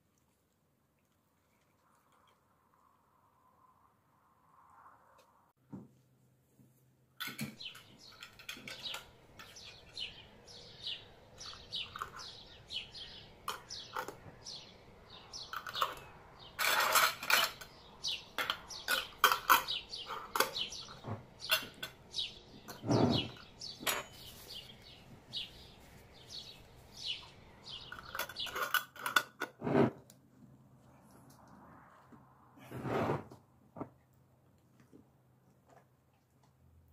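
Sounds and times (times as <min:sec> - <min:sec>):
metal lids clicking on glass jars: 0:15.5 - 0:22.0, 0:27.9 - 0:29.6.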